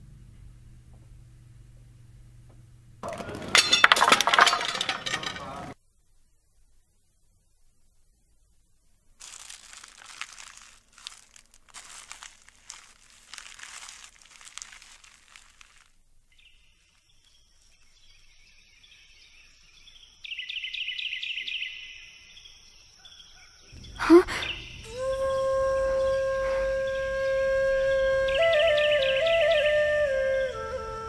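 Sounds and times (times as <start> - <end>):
crunching and rustling: 9.2 - 18.1
wildlife chirping: 9.3 - 30.6.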